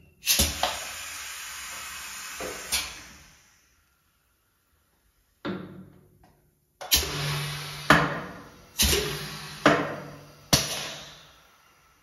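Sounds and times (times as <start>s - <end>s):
air hiss blasts: 0.2s - 3.8s, 6.8s - 12.0s.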